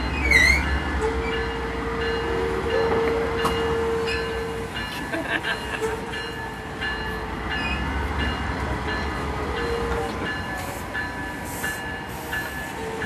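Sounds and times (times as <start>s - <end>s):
train wheels rumbling on rails: 0.0s - 13.0s
wheel squeals: 0.1s - 1.5s.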